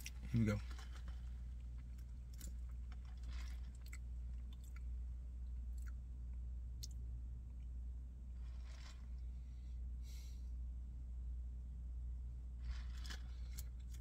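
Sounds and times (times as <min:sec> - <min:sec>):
slurping through a straw: 0:00.0 - 0:04.0, 0:08.4 - 0:09.4, 0:12.6 - 0:14.0
steady low hum: 0:00.0 - 0:14.0
lip smacks and mouth clicks: 0:05.7 - 0:06.0.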